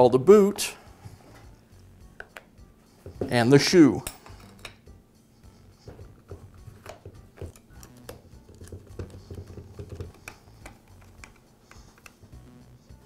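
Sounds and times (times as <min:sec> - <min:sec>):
metal clicks taps and scraping: 0:06.0 - 0:12.2
hand screwdriver turning screw: 0:06.1 - 0:12.2.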